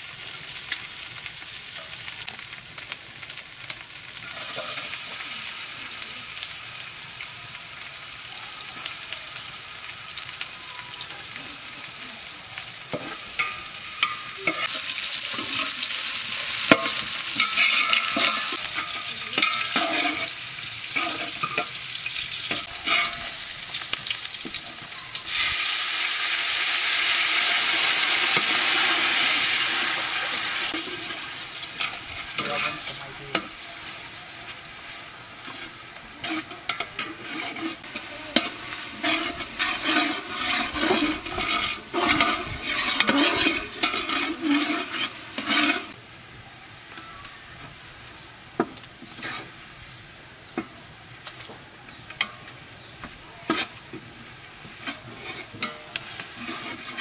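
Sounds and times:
food frying in hot oil: 0.0s - 57.0s
metal spatula scraping pot: 12.9s - 15.8s, 16.5s - 23.5s, 27.1s - 33.5s, 35.4s - 46.0s, 49.1s - 49.6s, 53.4s - 53.8s, 54.7s - 57.0s.

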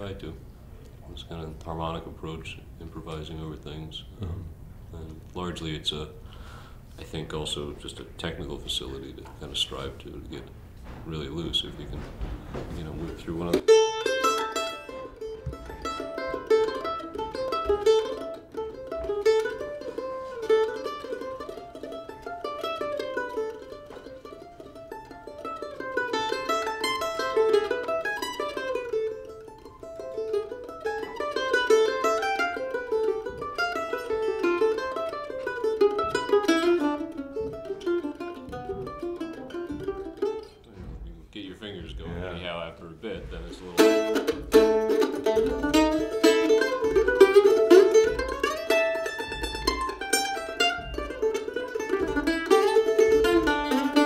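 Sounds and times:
mandolin picked runs: 1.2s - 54.0s.

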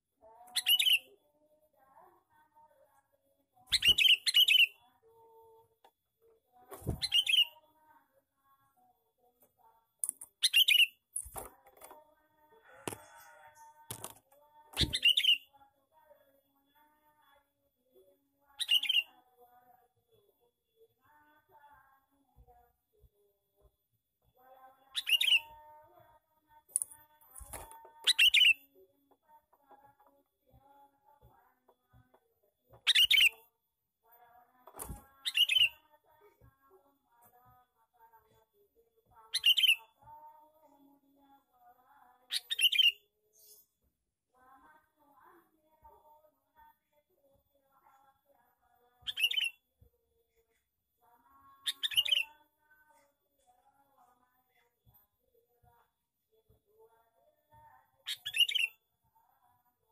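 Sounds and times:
bulbul singing: 0.4s - 1.1s, 3.7s - 4.8s, 6.8s - 7.6s, 10.0s - 11.4s, 14.8s - 15.5s, 18.6s - 19.2s, 24.8s - 25.6s, 26.7s - 28.7s, 32.8s - 33.5s, 34.8s - 35.9s, 39.3s - 40.0s, 42.3s - 43.6s, 49.0s - 49.6s, 51.6s - 52.4s, 58.1s - 58.8s
bird chirping: 0.5s - 1.1s, 3.7s - 4.8s, 6.9s - 7.6s, 10.0s - 11.3s, 14.8s - 15.5s, 18.6s - 19.1s, 24.9s - 25.6s, 26.8s - 28.7s, 32.8s - 33.5s, 35.2s - 35.8s, 39.3s - 39.9s, 49.0s - 49.6s, 51.6s - 52.4s, 58.1s - 58.8s.

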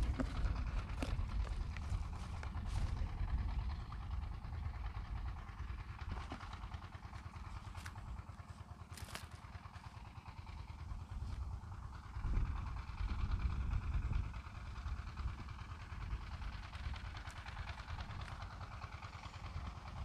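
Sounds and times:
microphone handling clicks and rustles: 0.0s - 3.0s
wind buffeting microphone: 0.0s - 8.3s, 10.8s - 18.7s.

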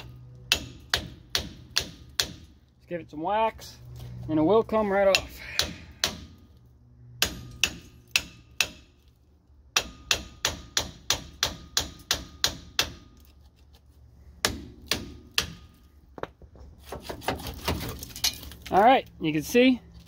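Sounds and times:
hammer striking metal: 0.0s - 2.5s, 5.1s - 6.4s, 7.2s - 9.0s, 9.7s - 13.1s.

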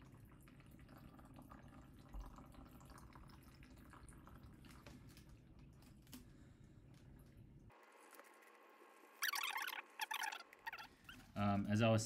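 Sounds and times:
liquid dripping into plastic bag: 0.1s - 6.3s.

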